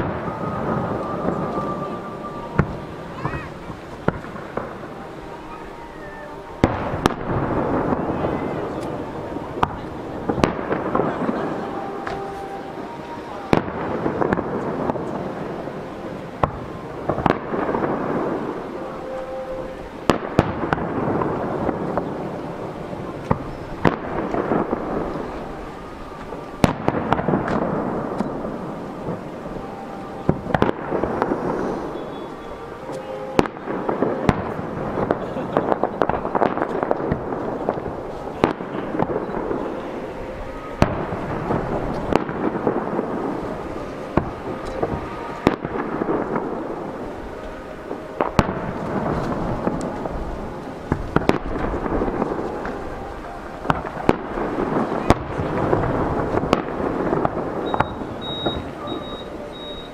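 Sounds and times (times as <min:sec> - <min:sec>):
echoing booms: 0:00.0 - 0:52.8, 0:53.6 - 0:59.7.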